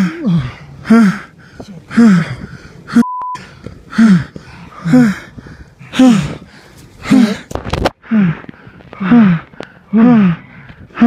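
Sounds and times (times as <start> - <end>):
person gasping breaths: 0.0 - 11.0
single-tone beep: 3.0 - 3.4.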